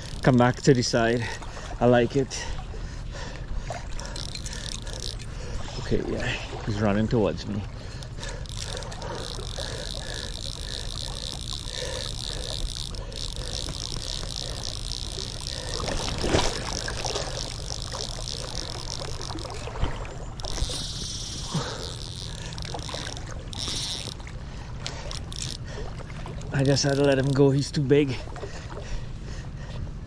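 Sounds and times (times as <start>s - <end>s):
fishing reel ratchet clicking: 0.0s - 1.3s, 4.0s - 5.4s, 8.0s - 19.8s, 20.4s - 25.7s, 26.5s - 27.6s
river water rumble: 0.0s - 29.7s
wind: 0.0s - 30.0s.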